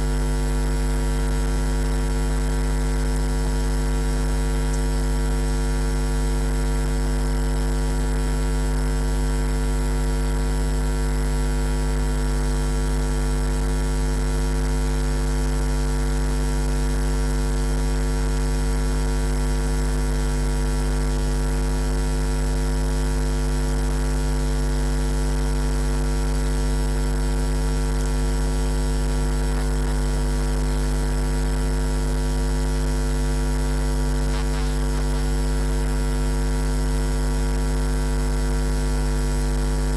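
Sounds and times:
electrical mains hum: 27.1s - 36.0s.

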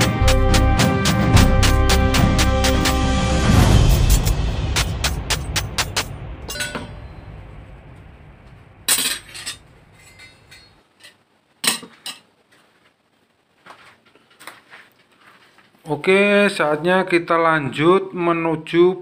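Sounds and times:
background music: 0.0s - 9.6s
steel-on-steel clinks: 6.5s - 7.1s, 8.9s - 10.8s.

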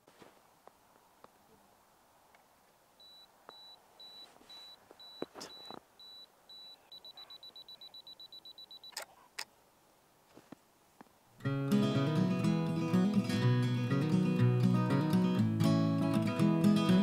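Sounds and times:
camera self-timer beeping: 3.0s - 9.1s
camera shutter clicks: 8.9s - 9.5s.

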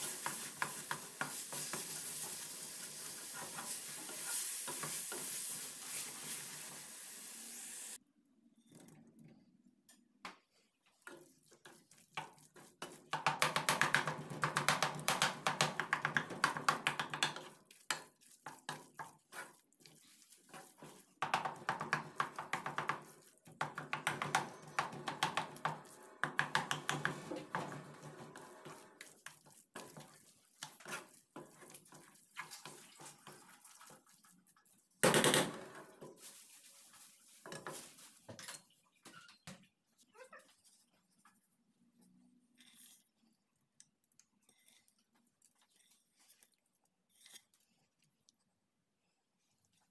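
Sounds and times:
wooden spatula scraping a steel pan: 0.0s - 6.8s, 16.4s - 34.8s.

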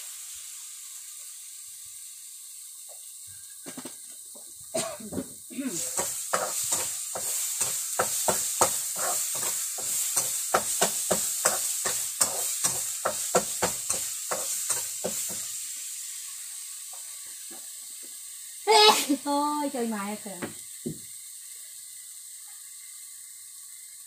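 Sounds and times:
frying sizzle: 0.0s - 24.0s
utensil scraping pan: 5.8s - 15.5s.

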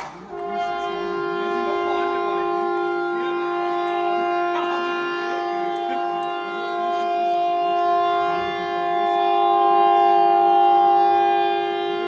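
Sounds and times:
air raid siren: 0.3s - 12.0s.

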